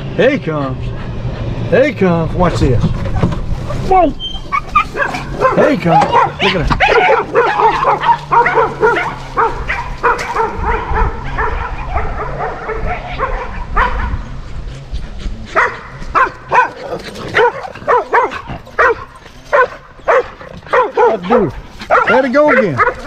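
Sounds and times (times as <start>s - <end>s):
low rumble: 0.0s - 17.8s
dog barking: 4.5s - 14.2s, 15.5s - 23.0s.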